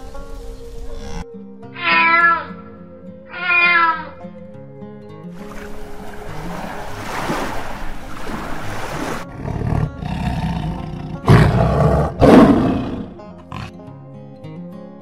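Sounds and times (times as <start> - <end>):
lion growling and roaring: 9.2 - 13.8.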